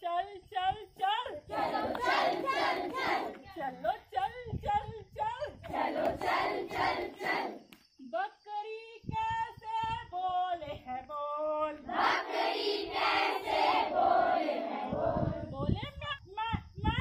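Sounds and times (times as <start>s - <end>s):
children singing and chanting: 1.4s - 3.8s, 5.4s - 7.8s, 11.7s - 15.8s.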